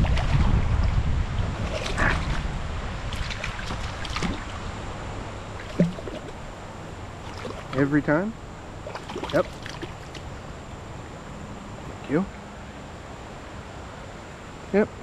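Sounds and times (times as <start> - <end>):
stream water splashing: 0.0 - 8.0, 8.8 - 10.4
wind rumble on microphone: 0.0 - 8.0.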